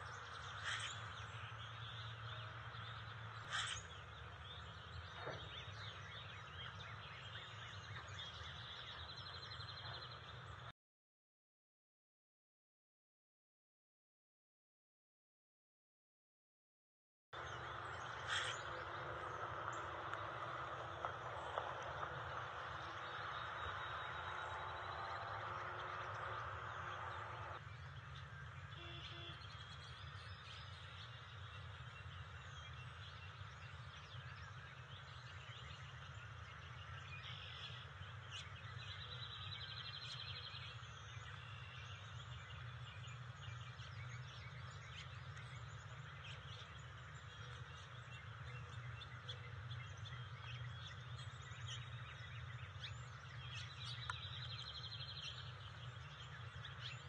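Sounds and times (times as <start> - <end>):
bird chirps and trill: 0.0 - 10.5, 17.4 - 57.0
birds singing: 0.0 - 10.7, 17.4 - 57.0
steady low rumble: 17.4 - 28.8.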